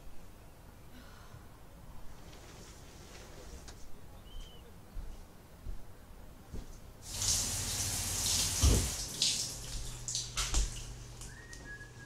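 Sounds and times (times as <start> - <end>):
tap water running into sink: 7.0 - 11.3
person whistling: 11.3 - 12.0.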